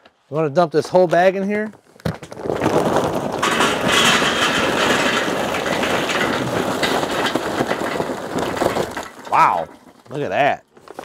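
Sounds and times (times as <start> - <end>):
charcoal clattering into metal basket: 2.1 - 10.5.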